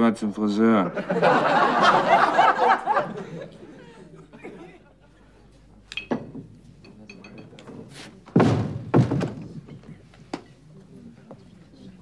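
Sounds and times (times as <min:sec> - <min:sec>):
door banging shut: 0:08.3 - 0:09.6
sharp knock: 0:08.4 - 0:09.5.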